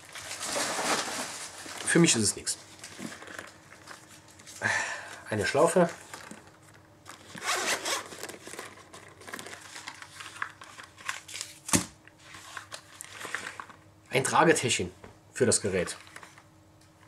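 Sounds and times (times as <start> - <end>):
zipper pulled open: 7.3 - 8.3.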